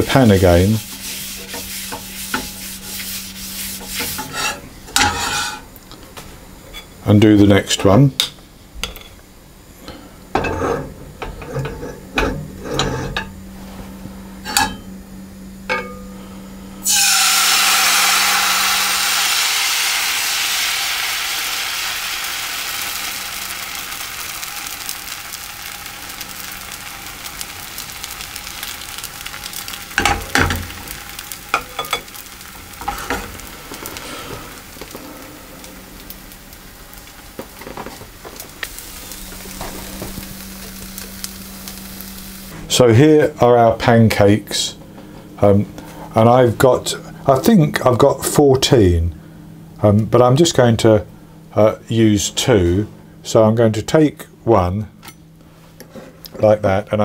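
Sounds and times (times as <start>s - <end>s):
batter sizzling in frying pan: 0.0s - 5.8s, 16.8s - 42.6s.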